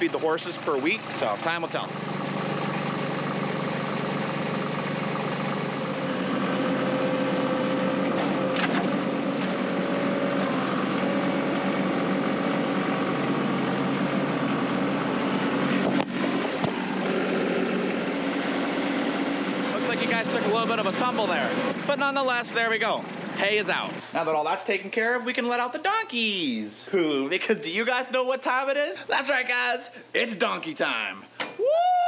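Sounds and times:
tractor engine running: 0.0s - 24.1s
sharp knock: 16.6s - 16.8s.

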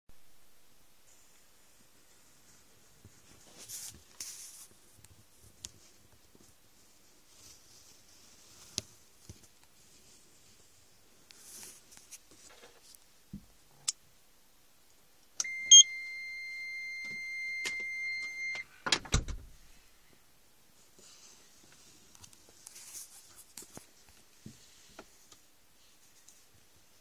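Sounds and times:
electronic buzzer beep: 15.4s - 18.6s.

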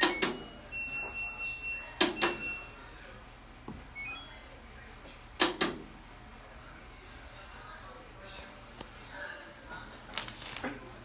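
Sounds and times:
washing machine button beeps: 0.0s - 2.8s, 4.0s - 4.4s.

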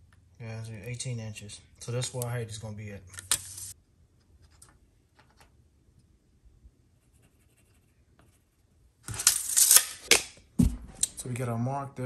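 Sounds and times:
pencil scratching on wall: 6.9s - 8.6s
tape measure clicks and handling: 9.1s - 10.4s.

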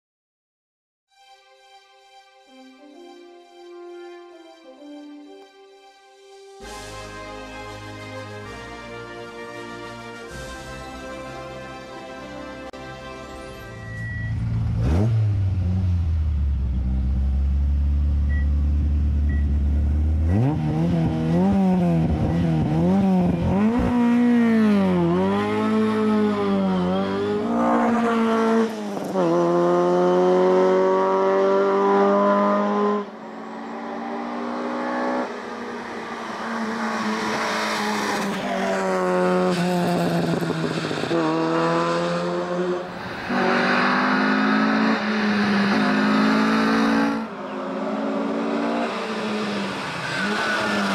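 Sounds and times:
race car engine revving: 14.1s - 50.9s.

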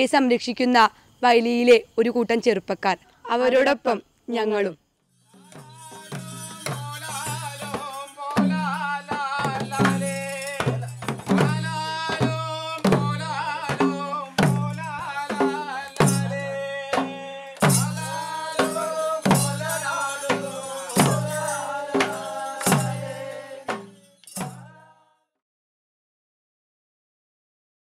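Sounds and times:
steady drum beat: 5.3s - 24.7s
voices singing: 5.3s - 25.1s.

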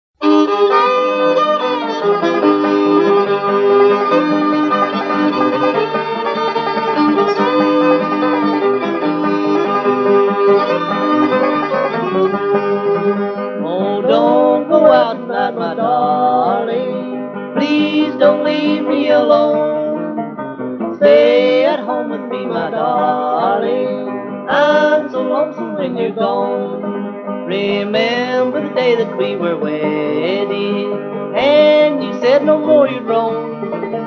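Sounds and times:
string band playing: 0.2s - 26.9s
person singing: 13.5s - 34.0s.

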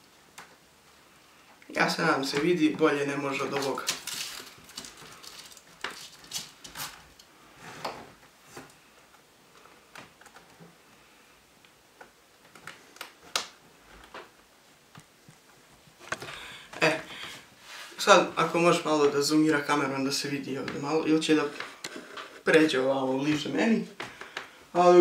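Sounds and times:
hands tapping and rustling: 3.4s - 10.8s, 11.6s - 17.5s, 20.6s - 22.4s.

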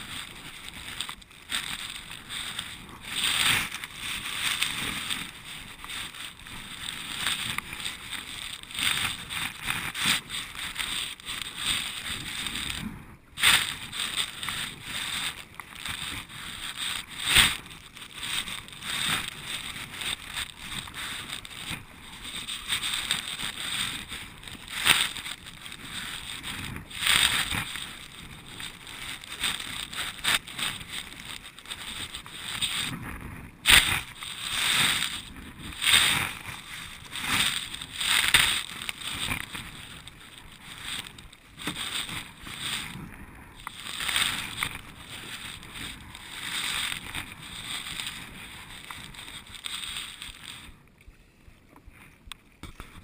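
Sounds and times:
water washing along hull: 0.0s - 50.6s.

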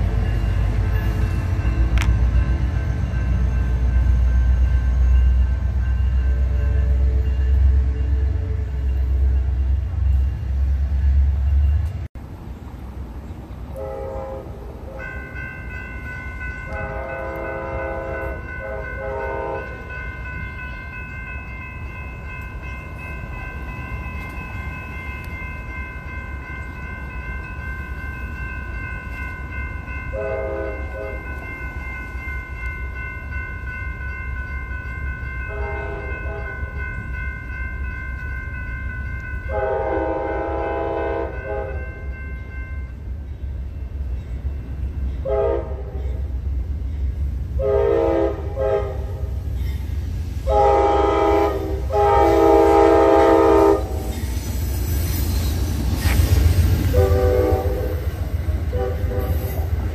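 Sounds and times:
crossing warning bell ringing: 0.0s - 12.1s, 13.7s - 59.9s
train horn blasts: 6.1s - 9.4s, 13.7s - 15.2s, 16.6s - 20.0s, 30.1s - 31.3s, 35.4s - 36.8s, 39.4s - 42.1s, 45.2s - 46.3s, 47.6s - 49.3s, 50.4s - 54.2s, 56.8s - 59.8s.

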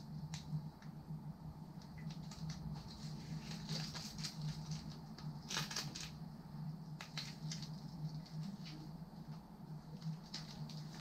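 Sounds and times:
steady low hum: 0.0s - 11.0s
grip tape crackling: 1.8s - 6.2s, 6.9s - 11.0s.

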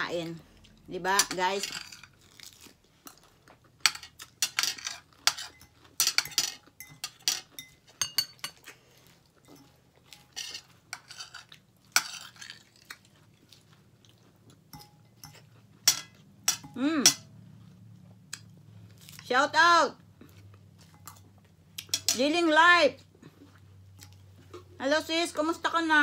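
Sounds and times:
fork scraping ceramic bowl: 9.5s - 12.6s.

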